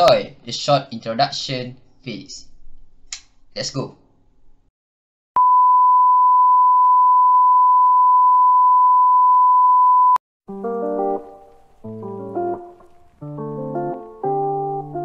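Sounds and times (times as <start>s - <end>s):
steady test tone beep: 5.4s - 10.2s
keyboard music: 10.5s - 15.0s.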